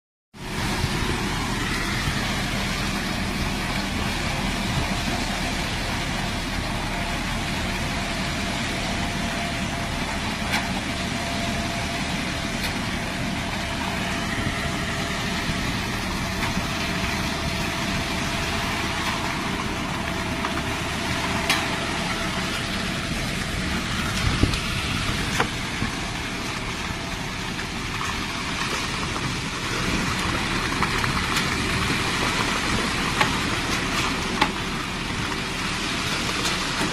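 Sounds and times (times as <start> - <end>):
concrete mixer engine running: 0.3 - 36.9.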